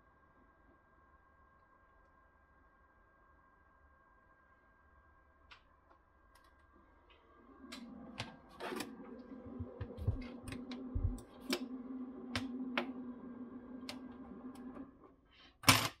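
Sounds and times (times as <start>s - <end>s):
projector hum: 0.0s - 15.2s.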